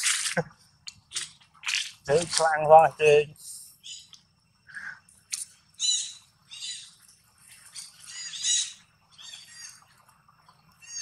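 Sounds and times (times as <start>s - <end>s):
high-pitched animal calls: 5.8s - 7.0s, 8.0s - 9.9s, 10.8s - 11.0s.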